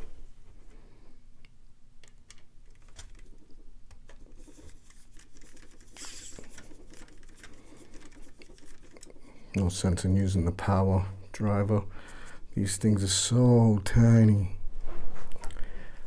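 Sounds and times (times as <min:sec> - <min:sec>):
screwdriver clicking and scratching: 0:02.0 - 0:09.6
screwdriver rasps: 0:04.5 - 0:09.2.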